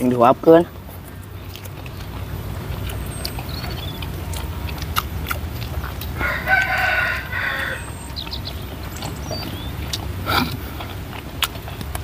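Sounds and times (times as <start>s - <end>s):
close chewing with smacks: 0.0s - 12.0s
rooster crowing: 6.1s - 8.6s.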